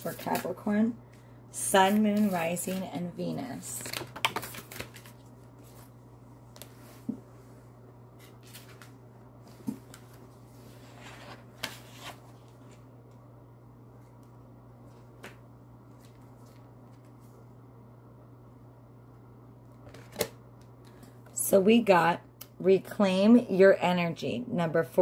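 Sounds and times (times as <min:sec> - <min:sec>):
steady low hum: 0:00.0 - 0:25.0
cards shuffling: 0:03.8 - 0:05.9.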